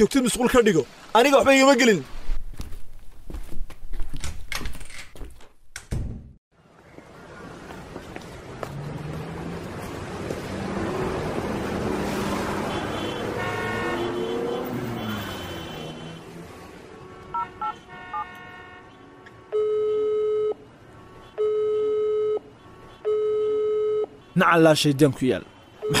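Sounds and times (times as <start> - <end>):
phone call tones: 19.5 - 20.6, 21.4 - 24.1.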